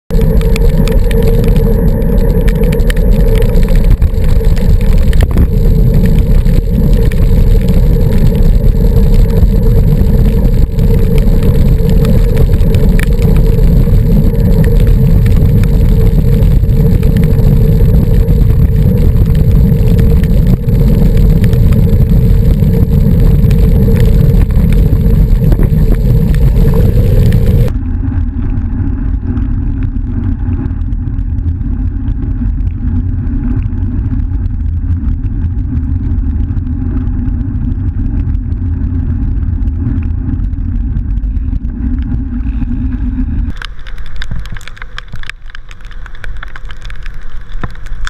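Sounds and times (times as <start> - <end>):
steady hum: 0.0 - 48.0
wind rumble on microphone: 0.0 - 48.0.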